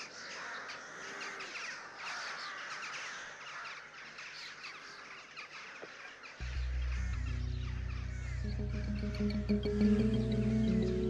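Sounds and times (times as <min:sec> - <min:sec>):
birds chirping: 0:02.8 - 0:11.0.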